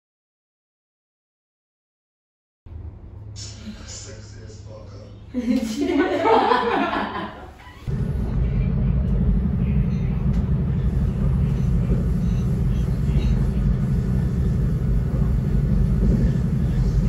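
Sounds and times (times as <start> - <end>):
train rumbling from inside carriage: 6.1 - 17.0.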